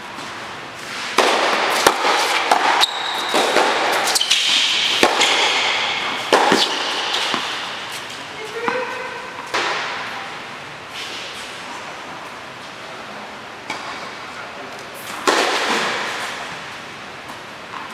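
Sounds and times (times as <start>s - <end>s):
tennis racket hitting ball: 0.2s - 10.2s, 15.1s - 16.6s
tennis ball bouncing: 1.1s - 10.2s
shoes squeaking on court: 1.7s - 9.6s.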